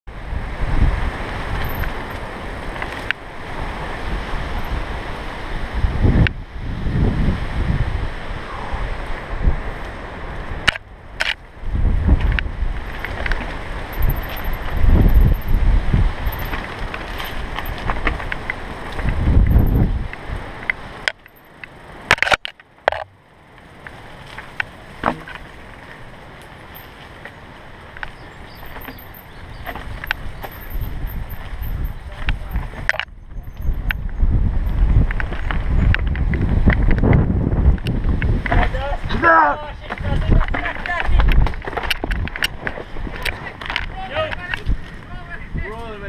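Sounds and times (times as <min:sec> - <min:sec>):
wind buffeting microphone: 0:00.1 - 0:21.1, 0:23.7 - 0:46.0
bike tyres rolling on dirt: 0:00.1 - 0:46.0
bike rattling knocks: 0:12.1 - 0:15.6, 0:16.2 - 0:19.9, 0:23.8 - 0:25.8, 0:26.4 - 0:38.9, 0:39.8 - 0:45.9.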